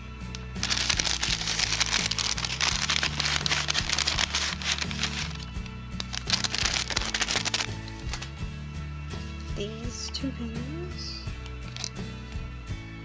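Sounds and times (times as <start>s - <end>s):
background music: 0.0s - 13.0s
paper bag rustling: 0.6s - 8.3s.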